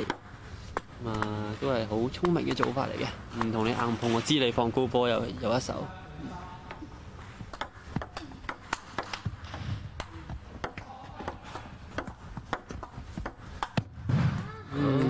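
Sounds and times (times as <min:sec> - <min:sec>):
low hall hum: 0:00.0 - 0:15.0
table tennis ball clicking: 0:02.2 - 0:03.8, 0:07.2 - 0:13.9.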